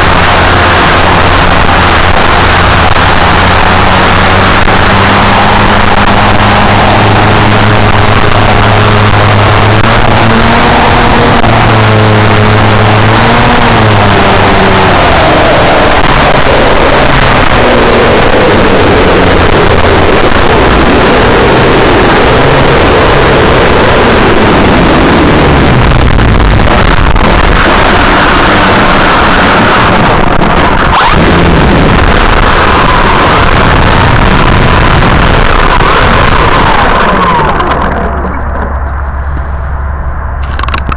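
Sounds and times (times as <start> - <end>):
electric motor whine: 0.0 - 38.4
steady high hum: 0.0 - 40.9
wind rushing over microphone: 0.0 - 40.9.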